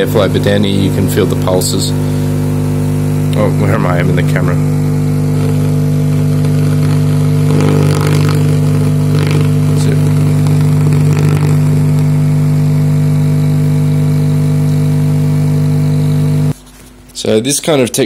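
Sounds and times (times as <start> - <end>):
low bass buzzing hum: 0.0 - 16.6
air pulsing through port: 1.8 - 3.4.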